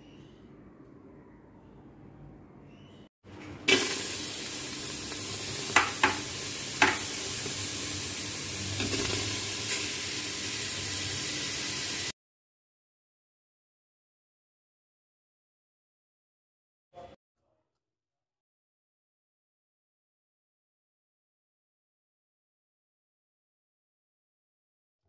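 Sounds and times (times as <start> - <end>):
onions sizzling in a pot: 3.7 - 12.1
utensil knocking against pot: 5.7 - 7.2.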